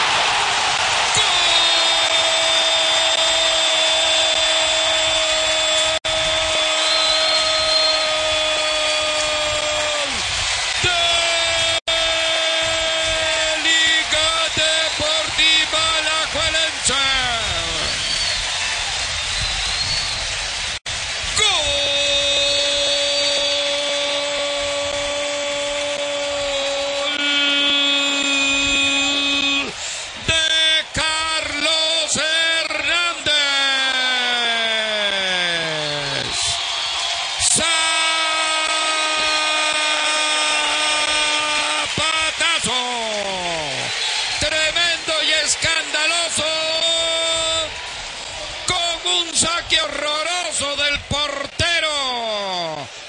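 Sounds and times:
stadium crowd cheering: 0.0s - 53.0s
commentator shouting: 10.8s - 17.9s, 21.3s - 36.6s, 37.4s - 47.8s, 48.7s - 52.9s.

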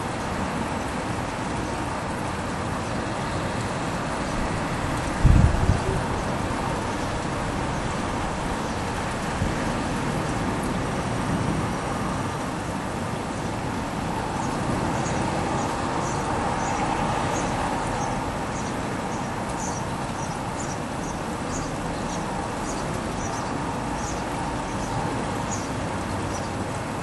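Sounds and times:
distant road traffic rumble: 0.0s - 27.0s
small birds chirping: 14.4s - 26.6s.

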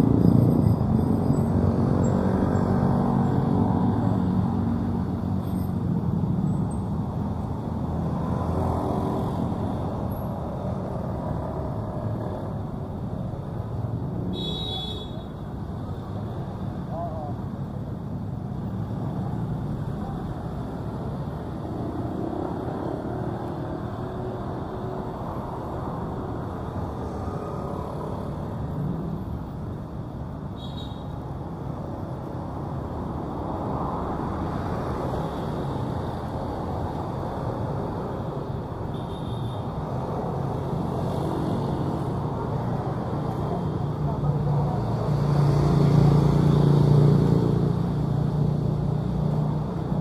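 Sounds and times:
cars and motorcycles passing: 0.0s - 50.0s.

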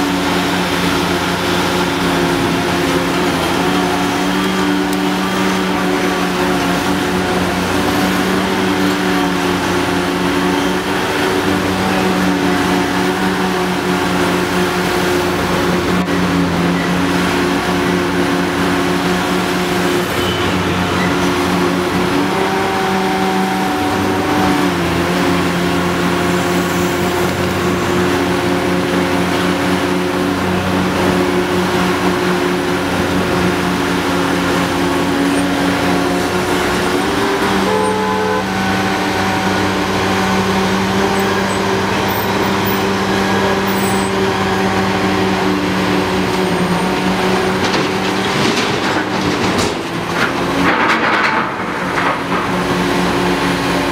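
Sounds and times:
excavator diesel engine running: 0.0s - 53.9s
traffic passing: 0.0s - 53.9s.

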